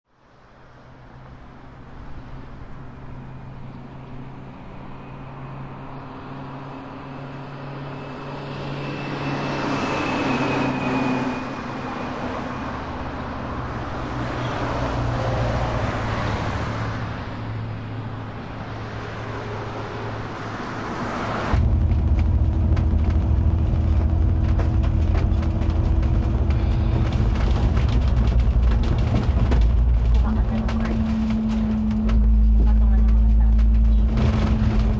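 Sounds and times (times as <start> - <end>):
vehicle engine and road noise: 0.1 - 34.9.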